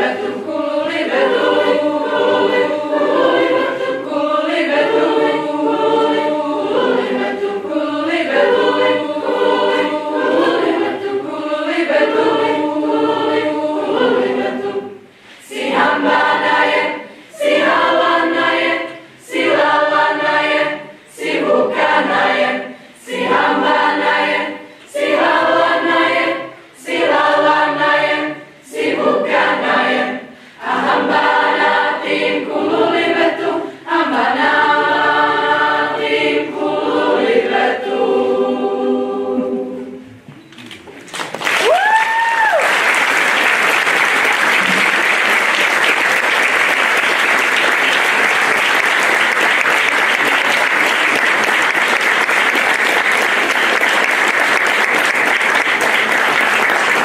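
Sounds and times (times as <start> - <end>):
youth choir singing: 0.0 - 40.3
applause: 41.0 - 57.0.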